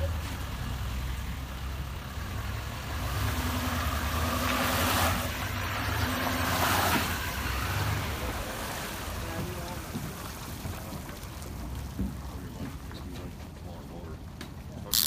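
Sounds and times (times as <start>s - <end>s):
pickup truck engine passing: 0.0s - 12.0s.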